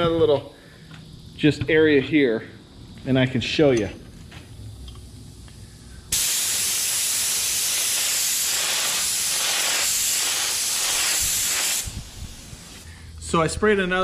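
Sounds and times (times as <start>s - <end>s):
spray gun air hiss: 5.5s - 13.1s.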